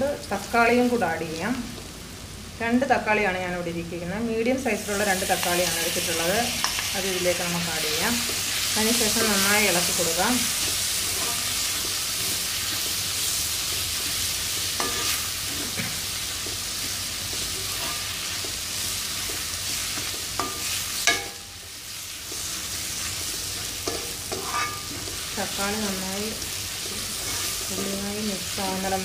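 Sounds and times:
vegetables sizzling in oil: 0.0s - 29.0s
metal spatula clinking and scraping: 14.7s - 15.8s, 19.3s - 21.5s, 23.6s - 25.2s, 27.1s - 28.0s.

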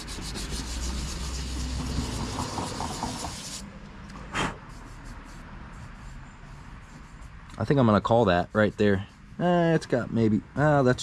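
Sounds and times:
sandpaper rasping: 0.0s - 3.6s, 4.6s - 9.8s.

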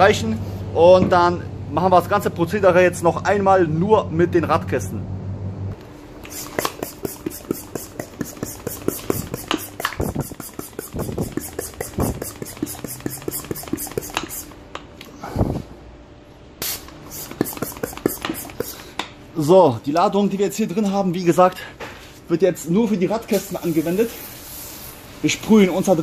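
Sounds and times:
sprayer pump clicking: 6.2s - 14.4s.

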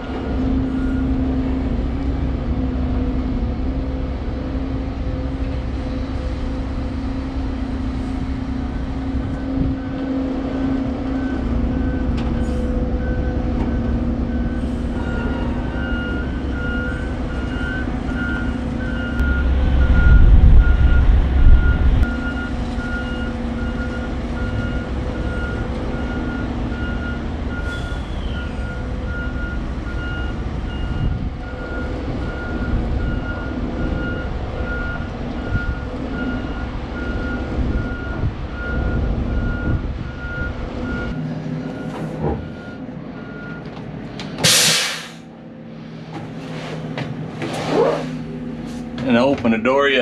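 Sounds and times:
heavy truck engine running: 0.0s - 50.0s
backup alarm beeping: 13.0s - 43.6s
air brake hiss: 27.6s - 28.4s, 44.4s - 45.3s.

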